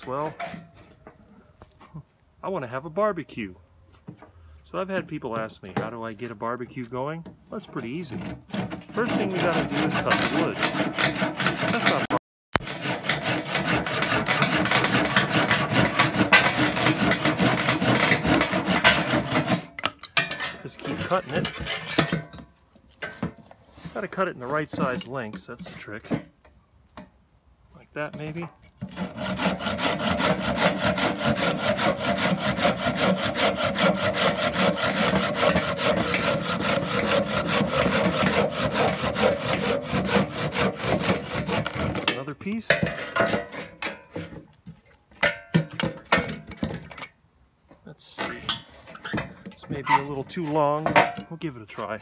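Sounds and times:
hand saw cutting branch: 7.6 - 22.2, 23.0 - 26.2, 28.1 - 44.8.

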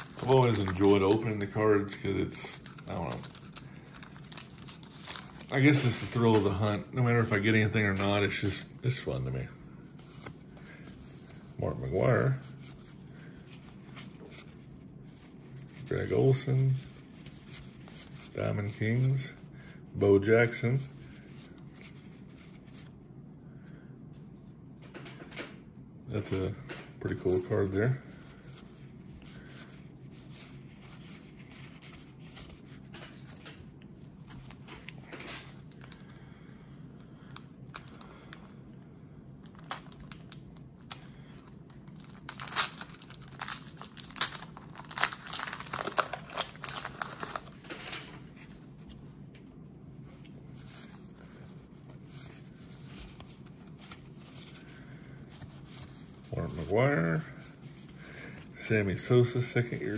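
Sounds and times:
wax paper wrapper tearing: 0.0 - 6.2, 39.4 - 48.2
cardboard cards rustling: 0.0 - 6.7, 26.3 - 36.2, 39.5 - 58.2.

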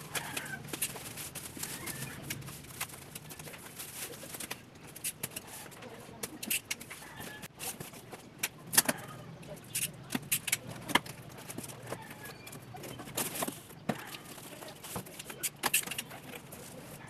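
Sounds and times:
bubble wrap rustling and crackling: 0.0 - 8.3.

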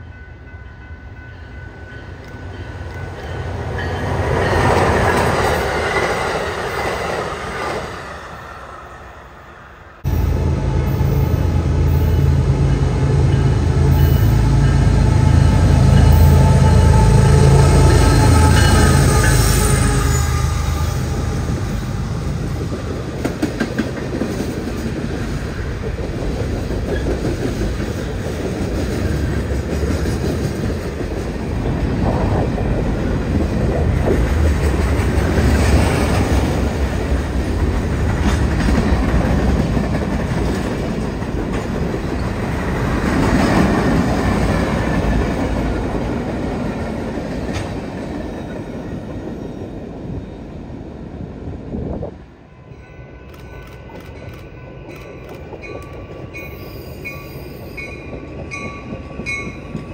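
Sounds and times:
freight train wheels rumbling on rail: 0.0 - 59.9.

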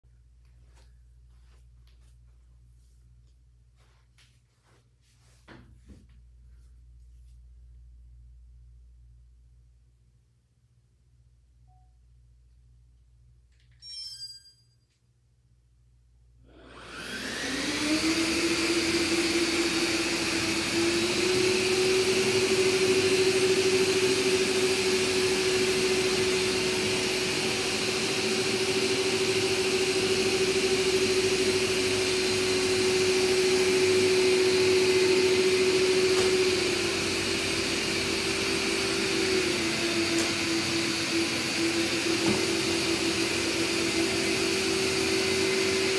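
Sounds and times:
robot vacuum suction motors: 16.6 - 45.9.

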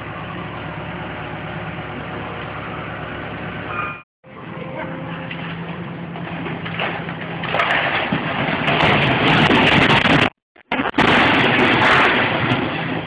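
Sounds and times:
excavator engine running: 0.0 - 7.6
building collapsing with crashing debris: 5.3 - 13.0.

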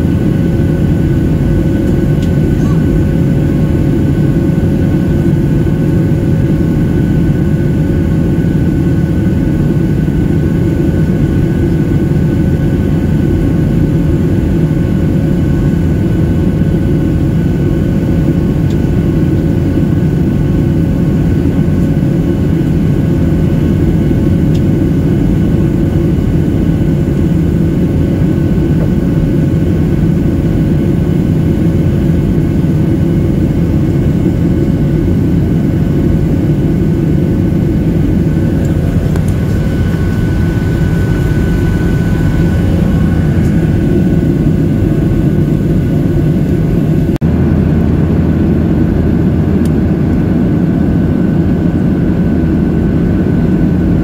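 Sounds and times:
jet cabin roar: 0.0 - 54.0
faint whining tones: 37.7 - 46.8.

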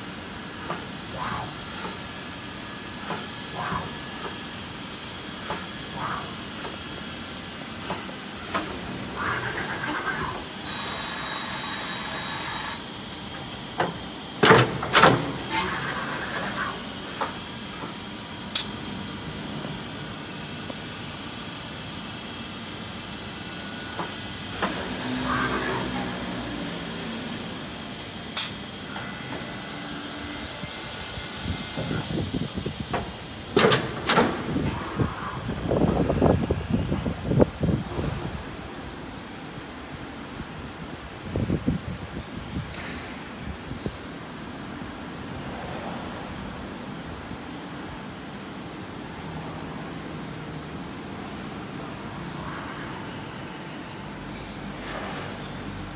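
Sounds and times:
machine shop hiss: 0.0 - 39.2
high steady whine: 0.0 - 40.0.

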